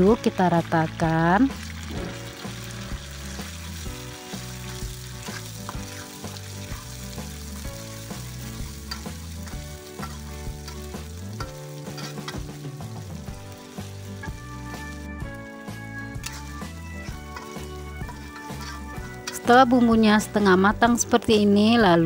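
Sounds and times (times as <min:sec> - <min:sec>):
spice paste sizzling in oil: 0:00.0 - 0:22.0
metal spatula scraping pan: 0:04.7 - 0:07.0, 0:08.4 - 0:12.6, 0:16.1 - 0:20.8.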